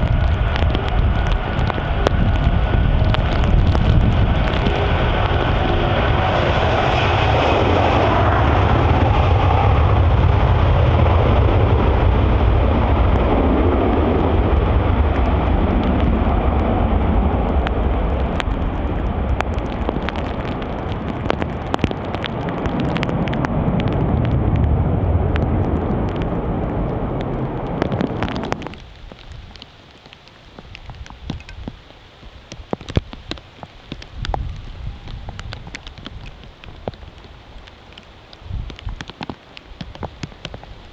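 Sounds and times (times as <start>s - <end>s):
rain drop ticks: 0.0s - 6.3s, 15.0s - 40.9s
jet engines at takeoff power: 0.0s - 28.8s
steady rain: 0.0s - 40.9s.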